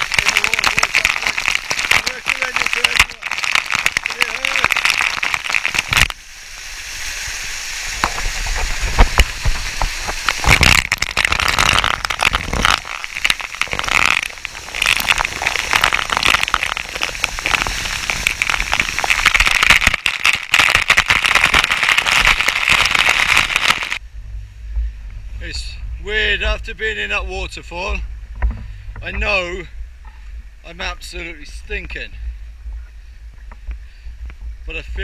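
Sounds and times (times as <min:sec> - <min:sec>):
water drops spattering on mic: 0:00.0 - 0:06.2, 0:08.0 - 0:24.0
waterfall rushing: 0:00.0 - 0:24.0.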